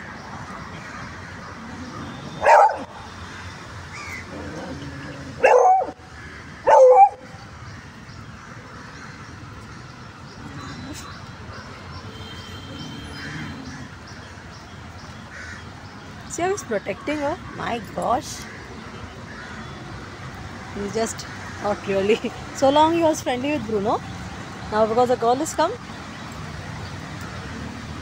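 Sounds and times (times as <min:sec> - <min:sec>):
dog barking: 0:02.4 - 0:02.9, 0:05.4 - 0:06.0, 0:06.7 - 0:07.2.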